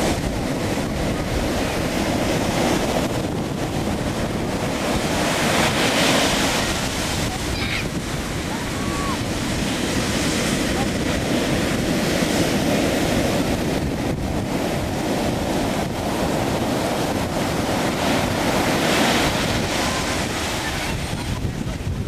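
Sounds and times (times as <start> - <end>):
ocean surf breaking: 0.0 - 22.0
wind buffeting microphone: 0.0 - 22.0.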